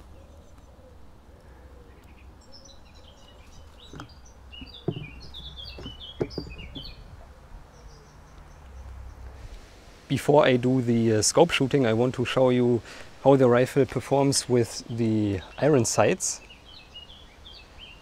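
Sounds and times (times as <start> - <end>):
songbird chirping: 0.0 - 18.0
knocks on wooden table: 3.9 - 6.9.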